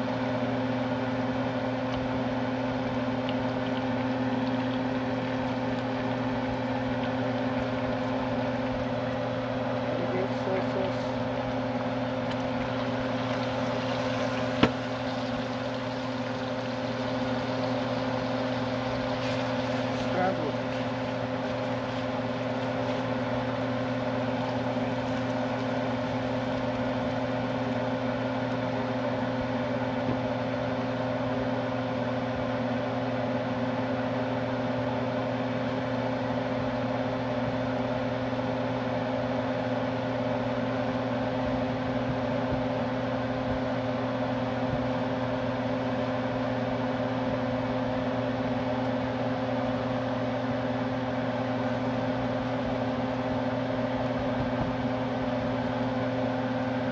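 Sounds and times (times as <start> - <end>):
motor humming and whirring: 1.2 - 30.2.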